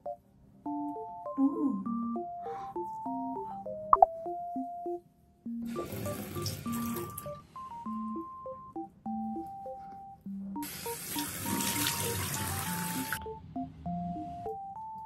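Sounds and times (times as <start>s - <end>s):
keyboard background music: 0.0s - 15.0s
water splashing at sink: 5.7s - 7.3s, 10.6s - 13.2s.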